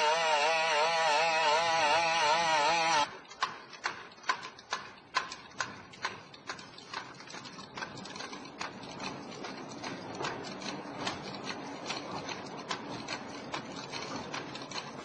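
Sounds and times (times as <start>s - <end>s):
two-stroke engine buzzing: 0.0s - 3.1s.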